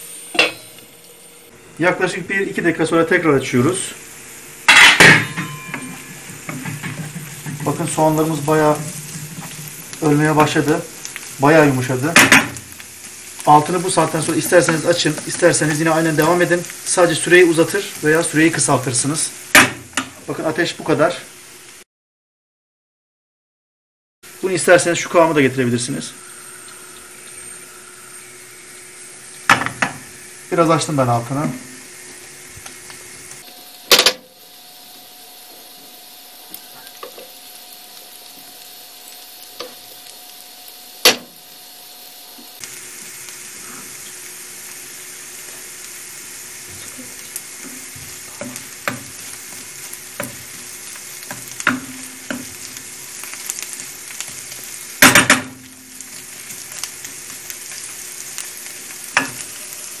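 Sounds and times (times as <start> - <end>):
onions sizzling in a frying pan: 0.0 - 21.8, 24.2 - 60.0
wooden spoon scraping a pan: 4.8 - 10.5.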